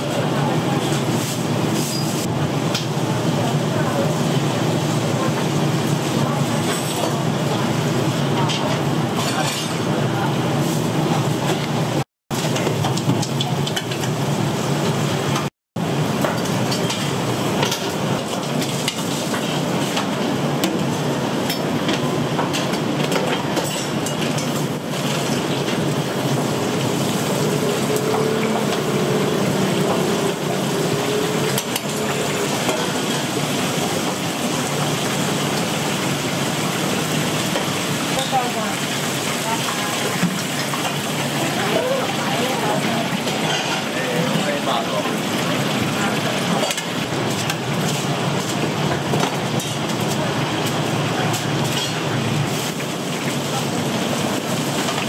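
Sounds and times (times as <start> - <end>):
dishes and utensils clinking: 43.2 - 44.5.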